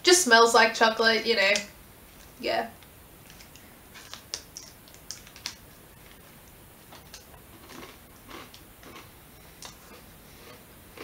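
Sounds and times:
foil wrapper crackling: 3.2 - 8.0
crunching bites of rice bar: 6.9 - 10.1.

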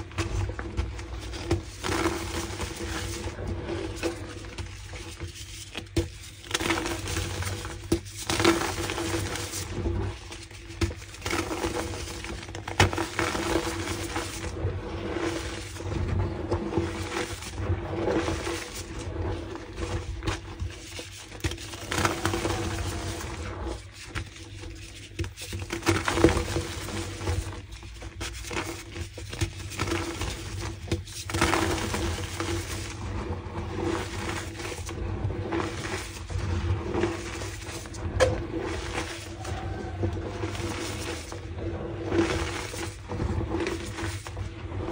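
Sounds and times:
chalk blocks crunching: 15.3 - 44.5.

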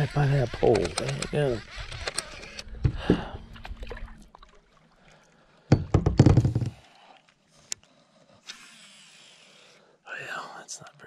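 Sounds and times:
knocks and thumps on kayak: 2.8 - 3.3, 5.7 - 6.8.

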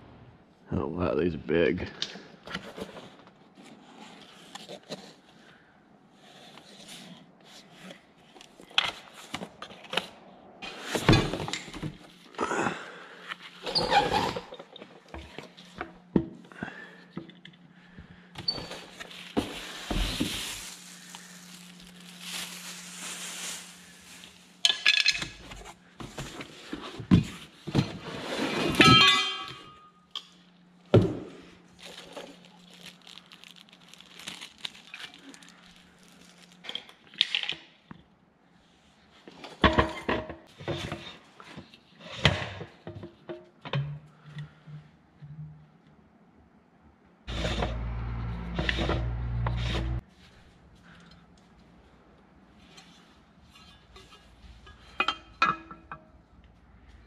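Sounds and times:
cardboard and packaging rustle: 18.4 - 24.6, 31.7 - 36.8.

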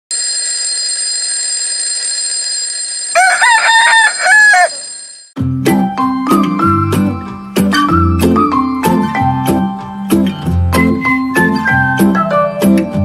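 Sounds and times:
rooster crowing: 3.1 - 5.2
music with a beat: 5.4 - 13.0.

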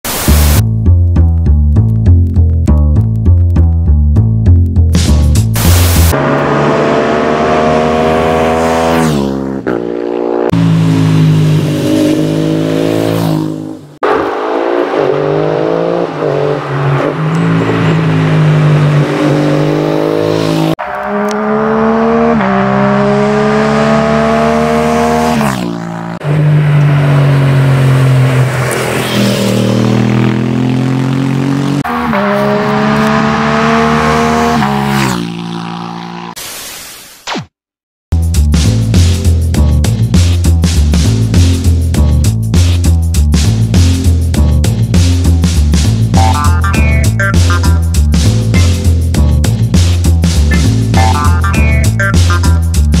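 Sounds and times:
motorcycle engine accelerating: 4.3 - 36.4.

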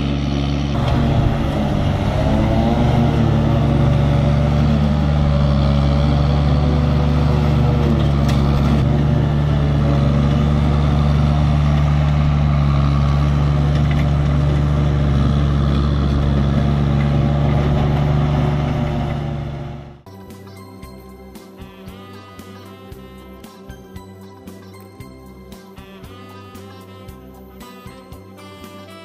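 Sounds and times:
mini loader running: 0.0 - 20.1
mower cutting grass: 0.0 - 29.0
guitar music: 0.7 - 15.0, 20.1 - 29.0.

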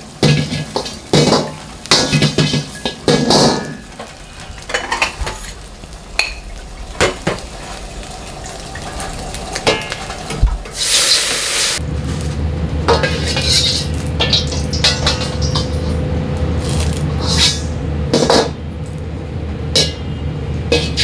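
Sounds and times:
gas burner roaring: 0.0 - 21.0
loud hiss: 10.6 - 11.8
metal ladle scraping a wok: 10.7 - 11.8, 12.9 - 16.0, 16.6 - 18.3, 20.7 - 21.0.

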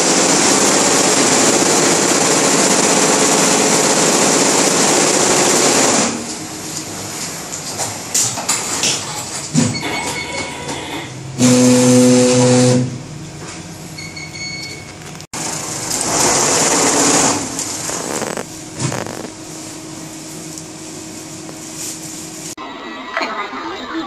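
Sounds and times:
embroidery machine running: 0.0 - 7.8, 9.9 - 13.6, 15.4 - 20.2
loud steady tone: 11.2 - 13.2.

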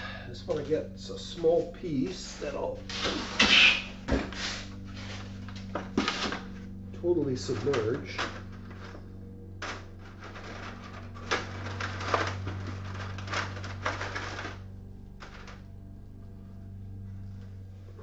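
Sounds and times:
steady low hum: 0.0 - 18.0
copper wire clattering in bucket: 7.3 - 9.0, 9.6 - 15.7.

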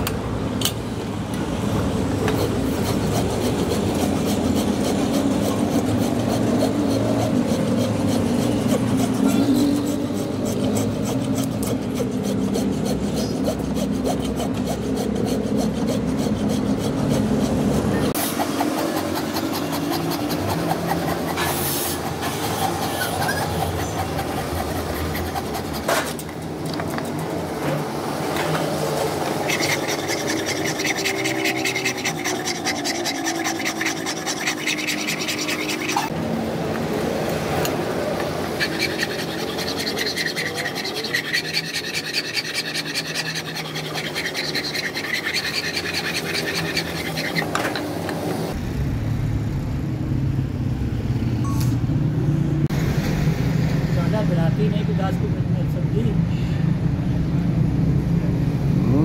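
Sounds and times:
file rasping on steel: 1.9 - 27.2, 28.4 - 36.2, 37.6 - 48.6
low steady rumble: 48.5 - 52.6.

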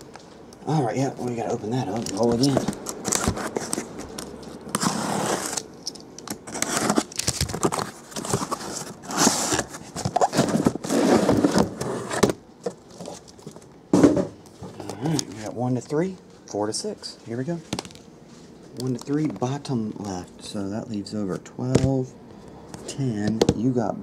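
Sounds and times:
boxes sliding out: 2.1 - 3.9, 4.7 - 5.6, 6.4 - 12.4
box cutter slitting tape: 4.7 - 12.3.

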